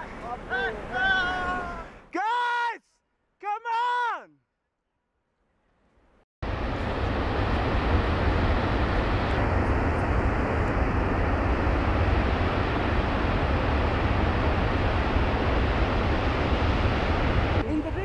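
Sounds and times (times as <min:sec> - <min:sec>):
torrent of water rushing: 0:06.4 - 0:18.0.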